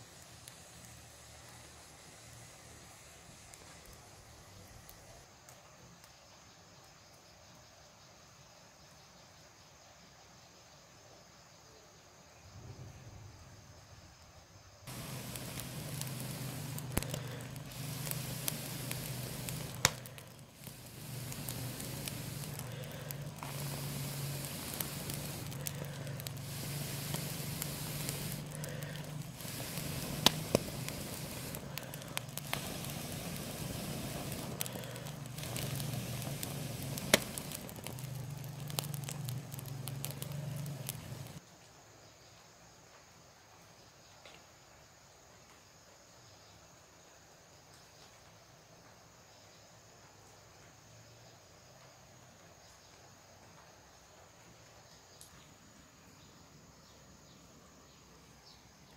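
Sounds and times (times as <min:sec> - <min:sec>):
snails crackling and sizzling on embers: 0:00.0 - 0:07.6, 0:14.8 - 0:41.4, 0:54.8 - 0:58.9
sharp pops: 0:14.9 - 0:41.4.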